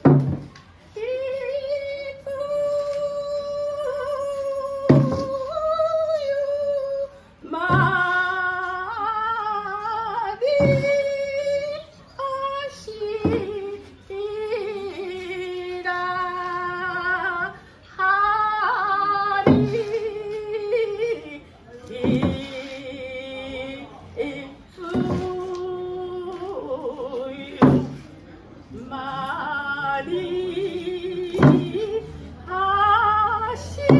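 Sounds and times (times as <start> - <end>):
women singing long wavering notes: 0.0 - 28.0, 28.8 - 33.9
hand-held frame drum strokes: 31.2 - 32.0.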